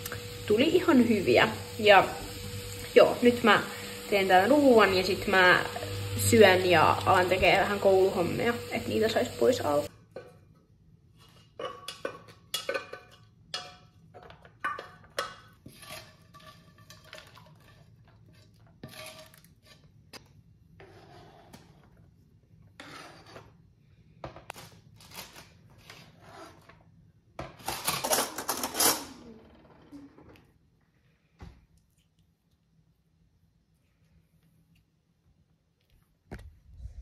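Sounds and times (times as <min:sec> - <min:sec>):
spatula scraping frying pan: 0:11.2 - 0:20.0, 0:20.8 - 0:22.0, 0:22.7 - 0:23.7.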